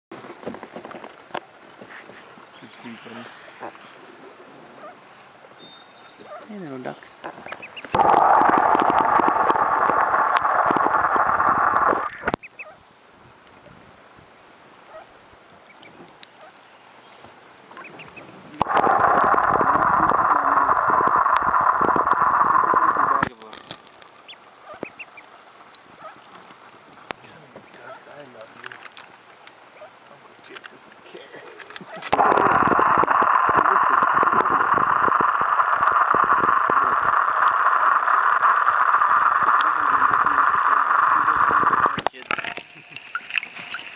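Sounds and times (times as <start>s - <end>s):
ducks quacking faintly: 2.0s - 5.2s, 24.2s - 28.6s
faint clicks: 7.2s - 12.6s, 18.6s - 25.0s, 28.6s - 43.9s
underwater water rush: 7.8s - 12.4s, 18.6s - 24.7s, 31.7s - 43.9s.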